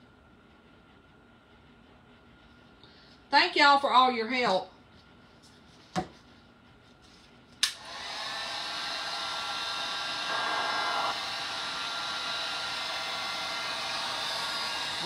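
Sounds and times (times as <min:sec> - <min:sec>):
heat gun switch click: 0:07.6 - 0:07.8
heat gun blowing: 0:07.6 - 0:15.0.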